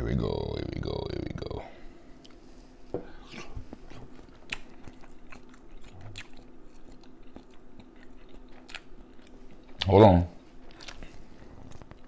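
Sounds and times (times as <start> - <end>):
person chewing: 3.1 - 9.9, 10.6 - 12.0.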